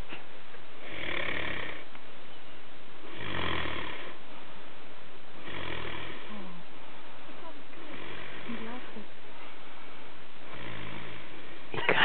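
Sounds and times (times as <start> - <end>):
person snoring: 0.8 - 1.8, 10.5 - 11.3.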